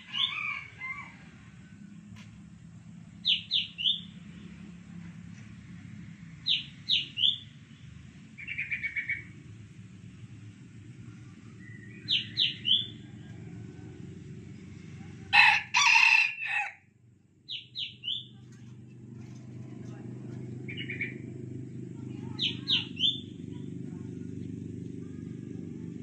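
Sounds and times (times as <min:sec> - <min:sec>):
rooster crowing: 0:00.0 - 0:01.8, 0:12.8 - 0:14.1, 0:15.3 - 0:16.8
small bird chirping: 0:03.2 - 0:04.2, 0:06.4 - 0:07.6, 0:08.4 - 0:09.4, 0:11.6 - 0:13.0, 0:17.5 - 0:18.4, 0:22.2 - 0:23.4.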